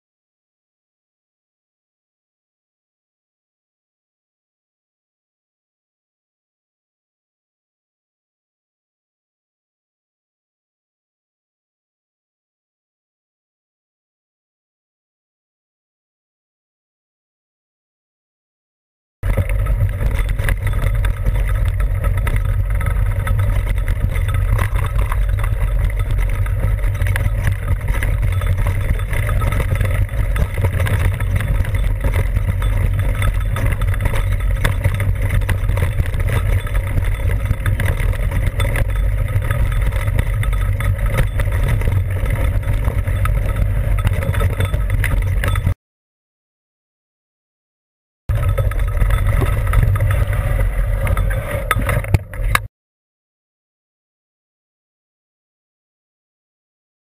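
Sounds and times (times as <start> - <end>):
mountain bike rattling on trail: 19.2 - 45.8, 48.3 - 52.7.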